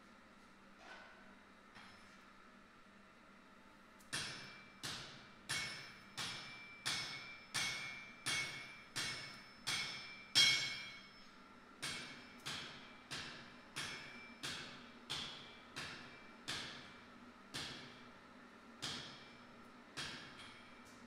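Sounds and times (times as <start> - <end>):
hammer striking steel on anvil: 4.1 - 18.1, 18.8 - 21.0.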